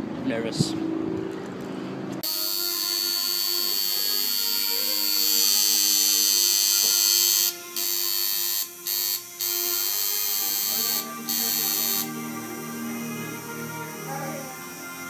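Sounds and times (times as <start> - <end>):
outdoor noise: 0.0 - 2.3
tattoo machine buzzing: 2.2 - 15.0.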